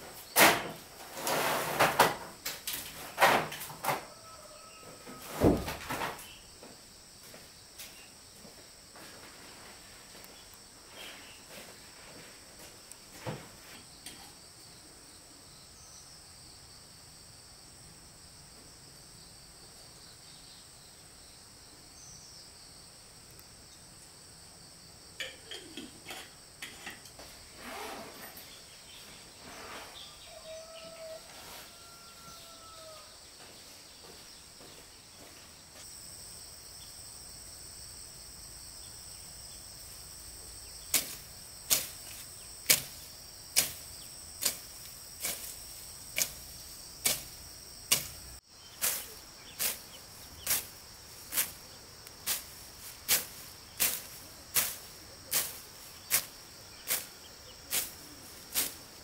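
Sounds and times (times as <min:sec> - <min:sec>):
insects droning: 0:00.0 - 0:59.0
sharp evenly spaced knocks: 0:40.9 - 0:48.2.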